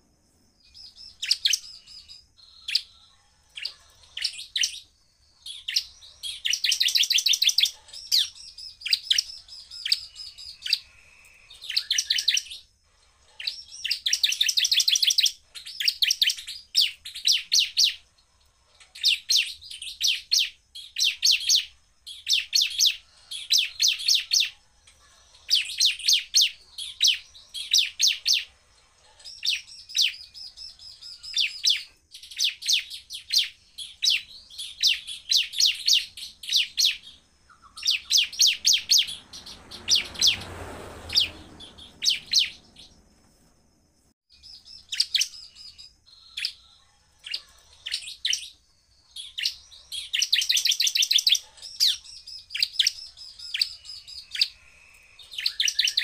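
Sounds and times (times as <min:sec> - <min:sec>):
bird chip calls: 0:00.6 - 0:18.0, 0:18.8 - 0:43.0, 0:44.3 - 0:56.0
rushing noise: 0:38.3 - 0:44.1.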